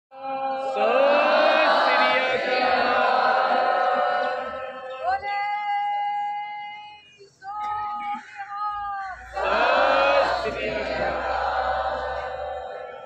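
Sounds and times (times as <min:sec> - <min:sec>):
group chanting in unison: 0:00.2 - 0:05.2, 0:09.2 - 0:13.0.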